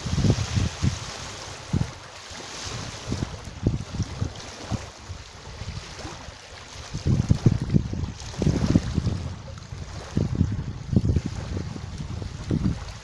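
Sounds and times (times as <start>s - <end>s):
wind hiss: 0.0s - 3.9s
small waves on water: 0.0s - 13.0s
wind buffeting microphone: 0.0s - 13.0s.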